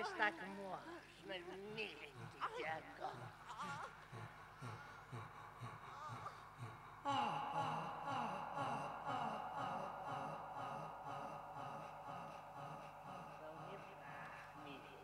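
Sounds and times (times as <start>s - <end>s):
man gasping and groaning: 3.5s - 15.0s
sustained held chord: 6.9s - 15.0s.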